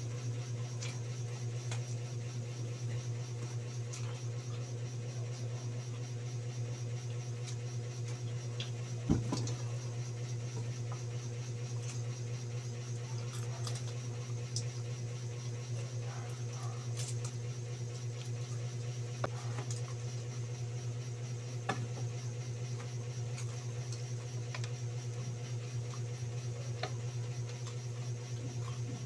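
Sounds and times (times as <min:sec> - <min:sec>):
man chewing food: 0:26.8 - 0:29.0.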